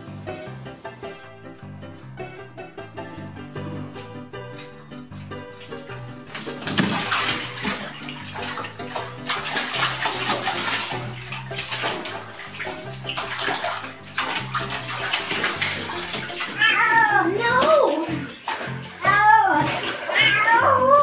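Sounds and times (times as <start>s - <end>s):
cat splashing in water: 5.6s - 21.0s.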